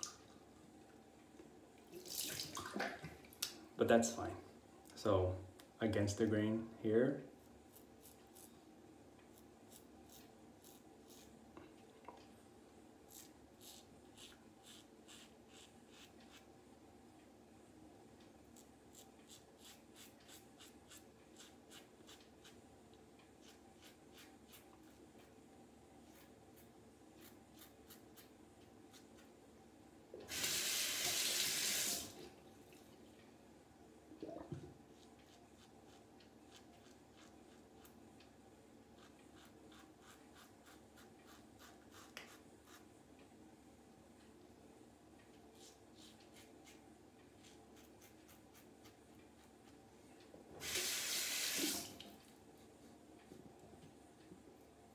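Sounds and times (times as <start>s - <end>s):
water tap running: 2.0s - 2.8s, 30.2s - 32.2s, 50.6s - 52.0s
razor scraping stubble: 9.3s - 11.3s, 13.1s - 16.5s, 18.6s - 22.6s.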